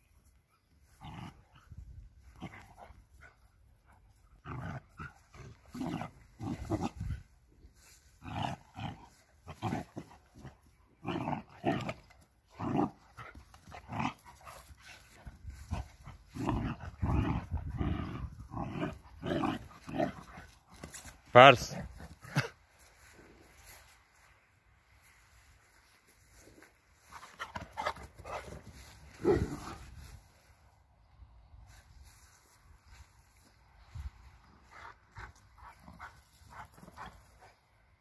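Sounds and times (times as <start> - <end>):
dogs growling in play: 0.8 - 3.5, 4.1 - 21.1, 27.2 - 30.2.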